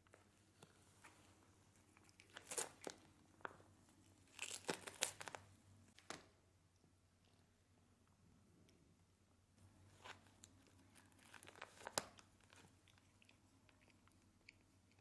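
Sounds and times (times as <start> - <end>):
wrapping paper crinkling and tearing: 4.3 - 5.4, 10.9 - 12.7.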